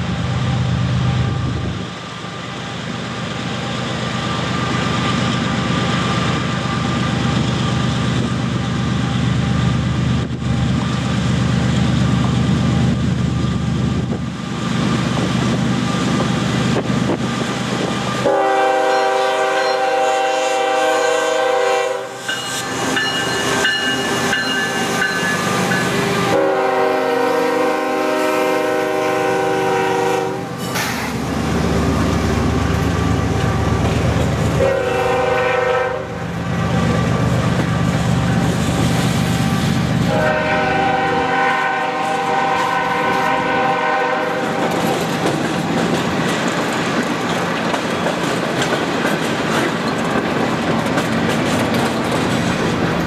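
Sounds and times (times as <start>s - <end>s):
diesel locomotive engines rumbling: 0.0s - 53.0s
train air horn blasts: 18.2s - 24.3s, 25.5s - 30.7s, 34.6s - 36.3s, 40.1s - 44.8s
train wheels clicking over rail joints: 30.5s - 34.6s, 44.3s - 53.0s.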